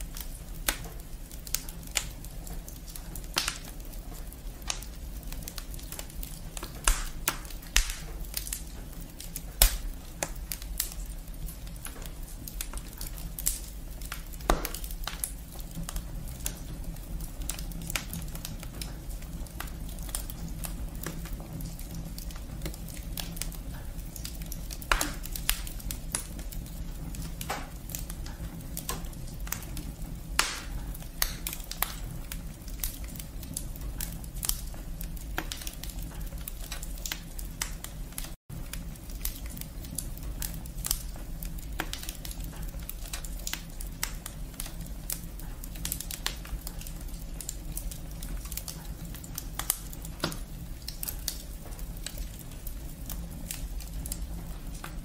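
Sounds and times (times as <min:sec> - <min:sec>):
wood fire crackling: 0:00.0 - 0:55.0.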